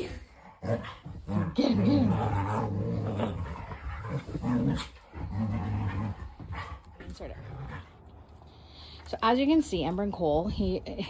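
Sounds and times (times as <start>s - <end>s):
dogs play growling: 0.0s - 8.7s.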